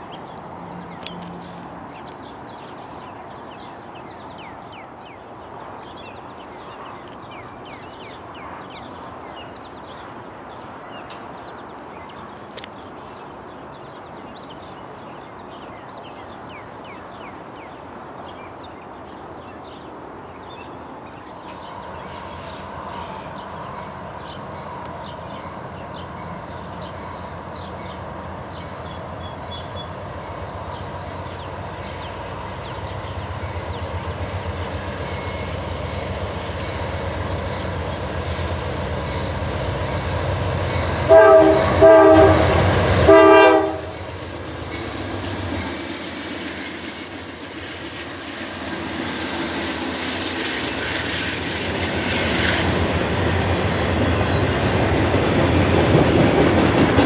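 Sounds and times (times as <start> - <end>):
train cars clattering: 31.3 - 57.0
train air horn blasts: 41.1 - 44.0.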